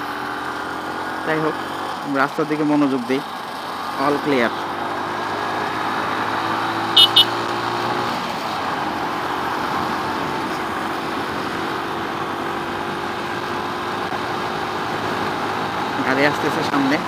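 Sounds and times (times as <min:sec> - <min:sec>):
motorcycle engine hum: 0:00.0 - 0:17.0
road and wind rush: 0:00.0 - 0:17.0
high-pitched horn beeps: 0:07.0 - 0:07.4.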